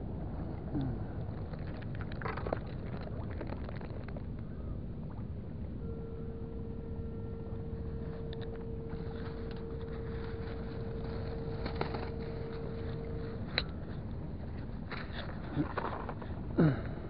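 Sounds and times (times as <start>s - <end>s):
steady low rumble: 0.0s - 17.0s
thin steady hum: 0.0s - 17.0s
plastic bag rustling: 8.8s - 13.9s.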